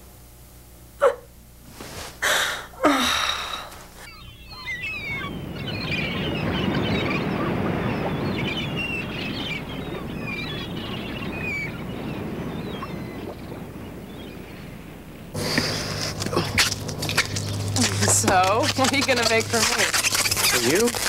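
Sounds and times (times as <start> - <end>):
low background rumble: 0.0 - 21.0
rubber balloons squeaking: 15.5 - 21.0.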